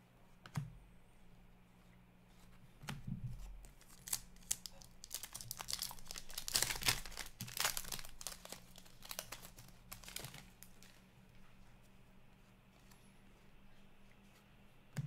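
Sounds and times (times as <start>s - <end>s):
foil wrapper tearing and crinkling: 3.8s - 11.0s.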